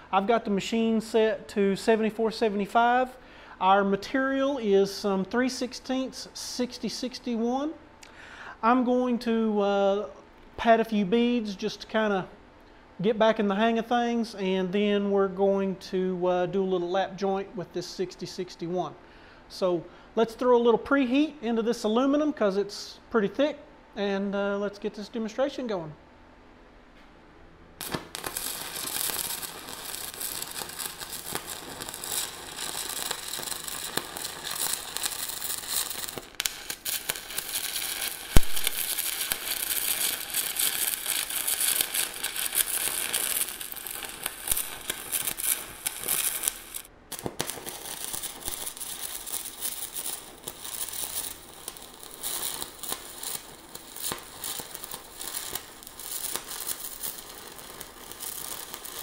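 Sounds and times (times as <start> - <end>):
welding arc crackle and hiss: 0.0 - 7.5, 27.8 - 59.0.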